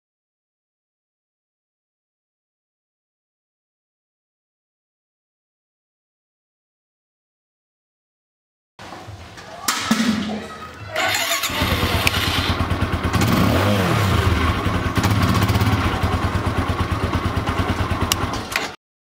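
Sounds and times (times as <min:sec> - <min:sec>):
clicks: 0:10.7 - 0:12.6
motorcycle engine starting and idling: 0:10.9 - 0:18.8.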